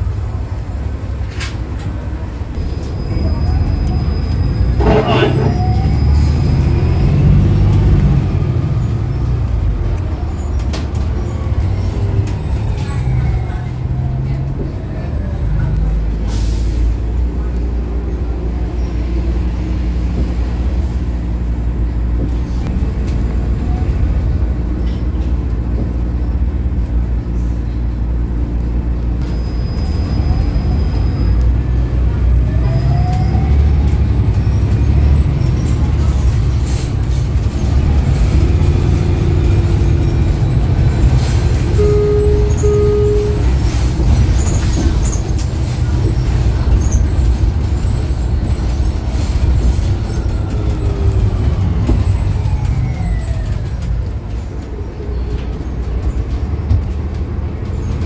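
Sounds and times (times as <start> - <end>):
bus engine and road rumble: 0.0 - 58.0
short beeps: 41.8 - 43.8.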